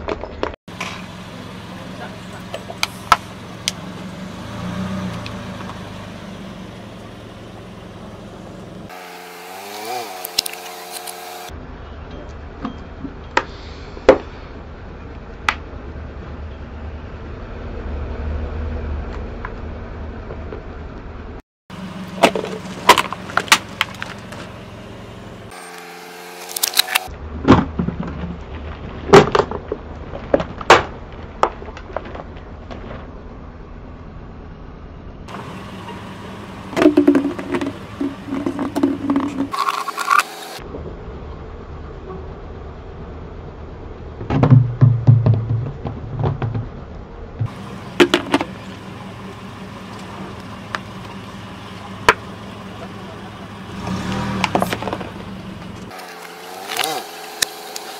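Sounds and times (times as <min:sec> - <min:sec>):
car engine running: 0:00.4 - 0:12.0, 0:19.0 - 0:27.9, 0:32.5 - 0:57.9.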